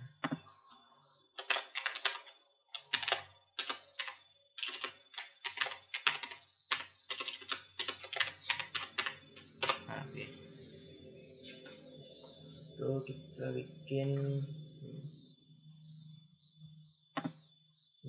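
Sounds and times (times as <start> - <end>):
typing on computer keyboard: 1.4 - 9.9.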